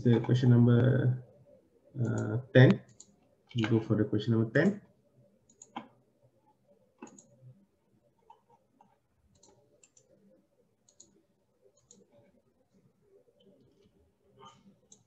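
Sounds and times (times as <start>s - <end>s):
faint computer mouse clicks: 5.5s - 5.9s, 7.0s - 7.4s, 8.2s - 10.2s, 10.8s - 11.2s.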